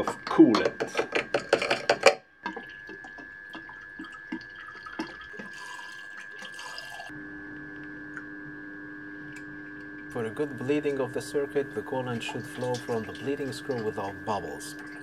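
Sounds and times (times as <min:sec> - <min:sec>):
liquid sloshing through a funnel: 0:00.0 - 0:08.0, 0:11.9 - 0:15.0
liquid trickling and dripping: 0:00.0 - 0:08.3, 0:09.2 - 0:10.2, 0:12.1 - 0:14.1
faint high hum: 0:00.0 - 0:15.0.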